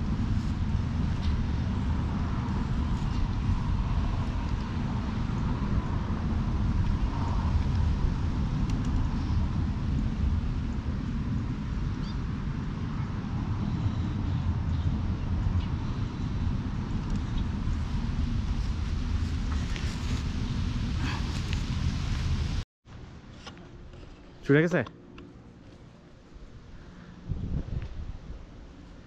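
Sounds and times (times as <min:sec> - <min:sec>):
wind buffeting microphone: 0:00.0 - 0:22.6, 0:26.4 - 0:29.0.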